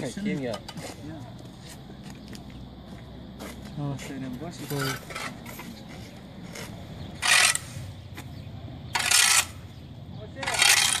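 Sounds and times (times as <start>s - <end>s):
shovel scraping gritty dirt: 3.5s - 11.0s.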